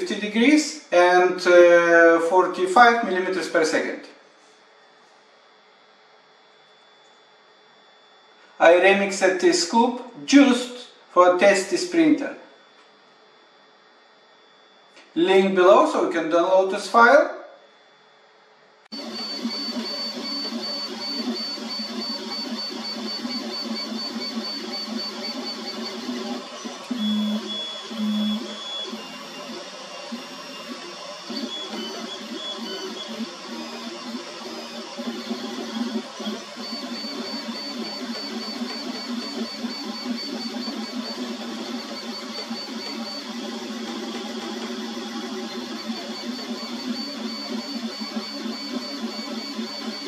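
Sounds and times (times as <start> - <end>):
thin high whine: 18.9 - 50.0
three d printer motors humming: 18.9 - 50.0.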